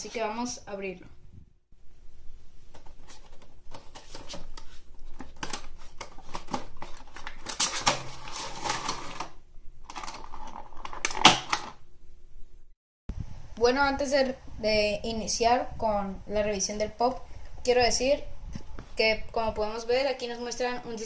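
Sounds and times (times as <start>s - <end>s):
plastic insert rustling: 2.6s - 11.8s
plastic crackle: 3.7s - 11.8s.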